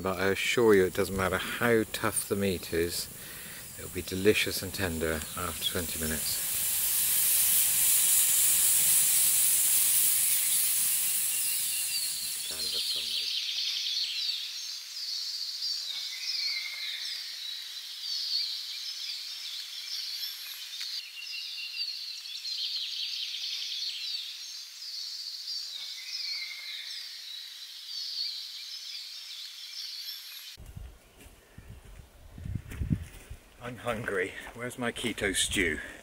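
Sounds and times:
birds chirping and trilling: 0:00.0 - 0:06.4, 0:11.3 - 0:33.0.

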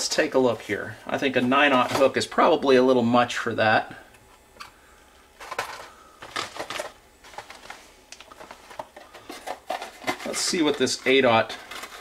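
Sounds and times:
plastic bags rustling: 0:04.8 - 0:12.0.

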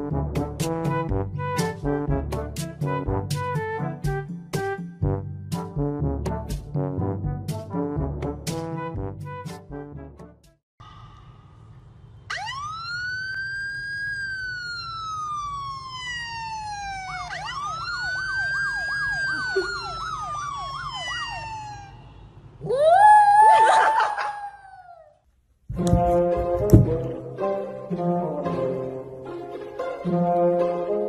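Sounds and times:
siren wailing from phone: 0:12.3 - 0:22.2.

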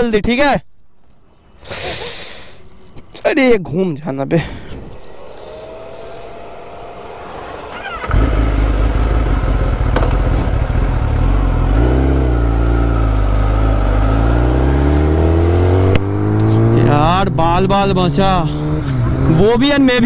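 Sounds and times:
motor vehicle engine accelerating: 0:04.5 - 0:20.0.

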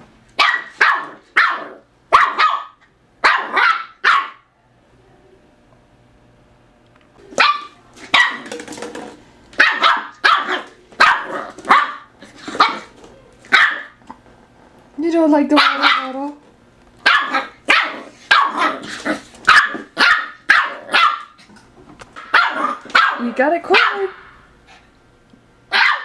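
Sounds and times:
puppy barking: 0:00.4 - 0:04.5, 0:07.3 - 0:08.5, 0:09.6 - 0:12.9, 0:13.5 - 0:14.0, 0:15.5 - 0:16.3, 0:17.0 - 0:21.4, 0:22.2 - 0:24.3, 0:25.7 - 0:26.0.

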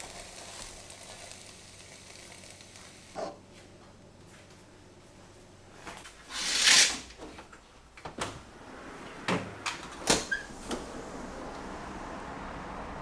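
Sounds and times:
city noise hum: 0:00.0 - 0:13.0
sliding window opening: 0:06.3 - 0:07.4, 0:08.1 - 0:12.1.

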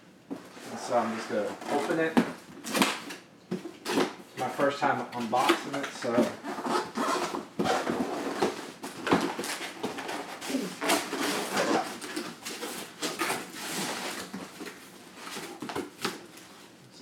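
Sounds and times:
cardboard rustling and scraping: 0:00.3 - 0:16.8
knocks and bumps on box: 0:07.3 - 0:10.2.

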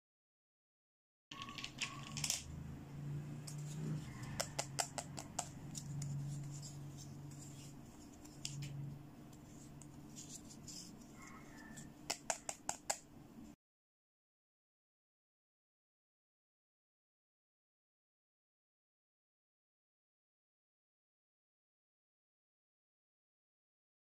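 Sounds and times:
plastic toys clicking and tapping: 0:01.3 - 0:02.5, 0:04.2 - 0:06.1, 0:11.7 - 0:13.0.

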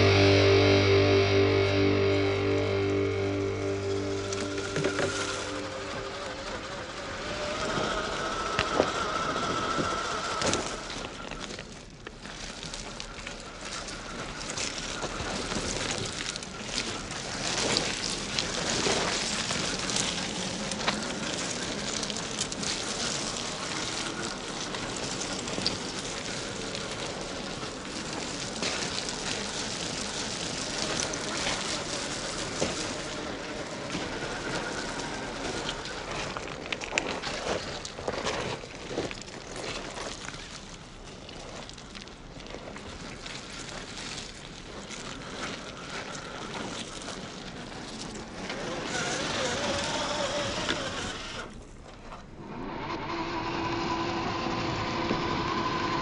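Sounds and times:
electric motor whine: 0:00.0 - 0:11.4, 0:52.4 - 0:56.0
tyres crunching over gravel: 0:00.0 - 0:52.4.

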